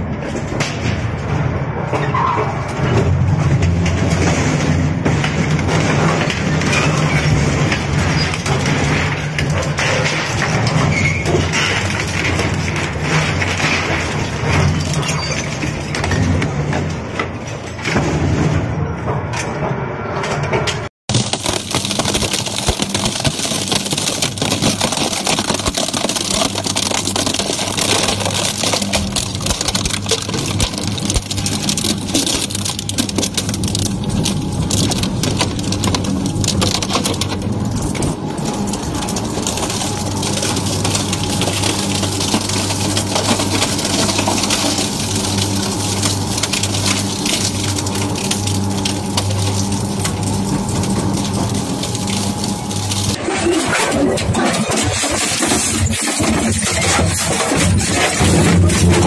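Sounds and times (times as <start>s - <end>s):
industrial shredder low hum: 0.0s - 59.0s
material crackling and snapping: 21.1s - 53.2s.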